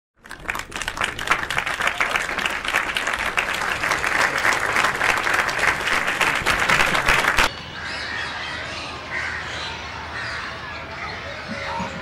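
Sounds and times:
applause: 0.2s - 7.5s.

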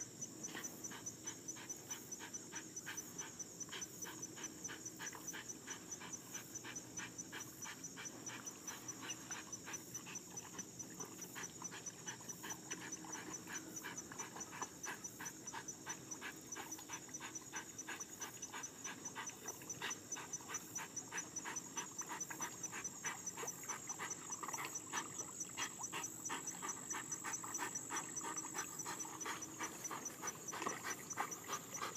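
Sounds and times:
dog panting rapidly: 0.4s - 31.9s.

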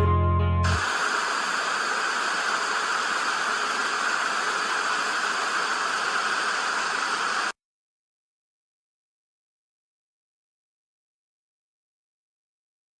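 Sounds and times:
static hiss: 0.6s - 7.6s.

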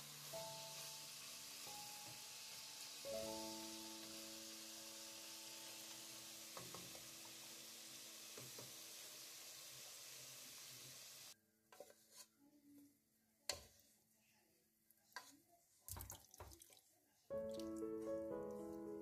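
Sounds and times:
food sizzling in hot oil: 0.0s - 11.4s.

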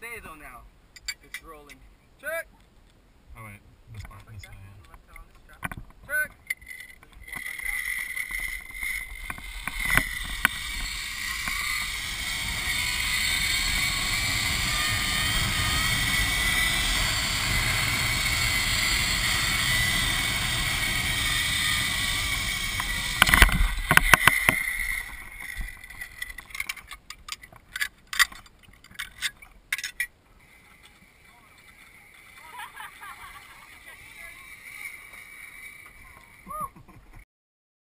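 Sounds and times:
zipline pulleys whirring on cable: 6.5s - 27.1s, 30.4s - 36.6s
metallic clicks of gear: 22.8s - 30.1s.

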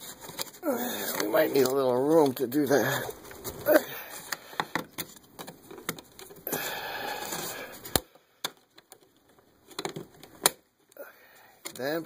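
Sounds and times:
plastic cover clicks and knocks: 4.3s - 6.4s, 9.7s - 10.6s.

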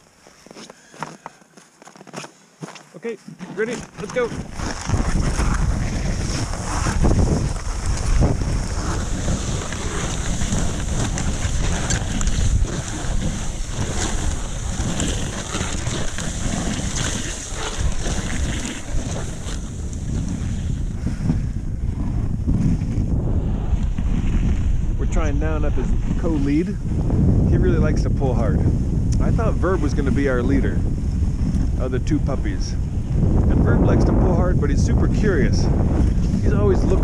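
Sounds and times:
sled runners scraping over snow: 0.0s - 37.0s
sled knocks and rattles: 1.0s - 23.0s
wind buffeting microphone: 3.6s - 37.0s.

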